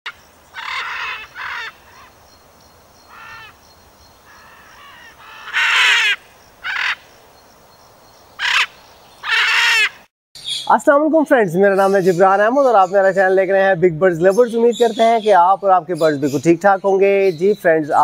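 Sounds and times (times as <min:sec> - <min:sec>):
parrot squawking: 0:00.6 - 0:02.1, 0:04.3 - 0:07.0, 0:08.4 - 0:10.7.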